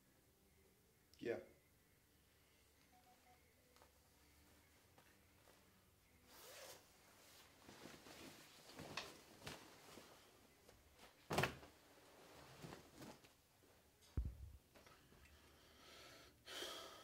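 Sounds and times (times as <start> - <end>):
leather jacket rustling: 6.3 - 10.3
jacket thumping on wooden chair: 11.3 - 11.7.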